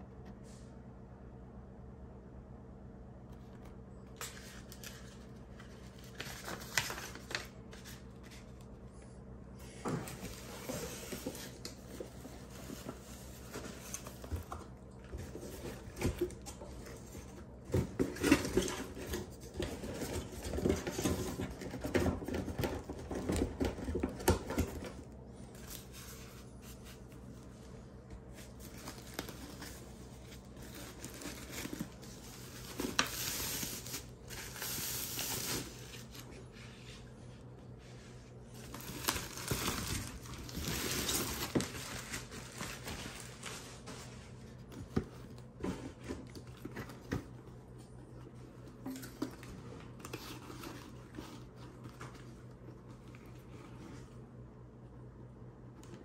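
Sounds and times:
cardboard box and bag rustling: 9.9 - 37.1, 38.5 - 54.2
plastic bag crinkling: 38.5 - 43.9.

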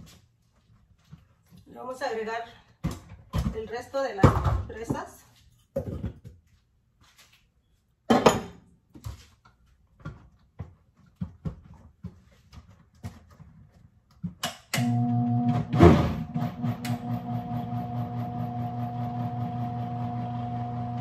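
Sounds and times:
blender motor humming: 14.8 - 21.0.

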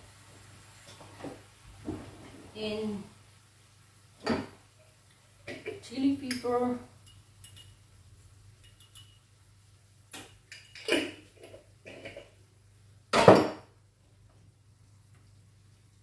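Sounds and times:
glass jar and utensils clinking: 8.6 - 9.2.

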